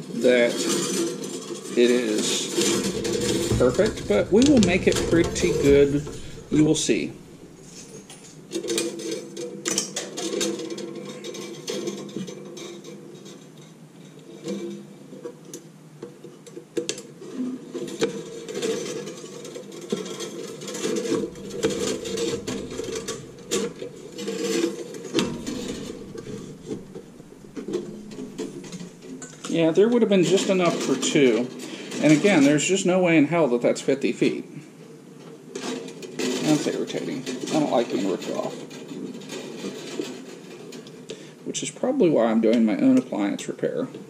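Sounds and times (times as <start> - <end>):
wire ticking on metal frame: 2.6 - 8.1, 21.0 - 29.4.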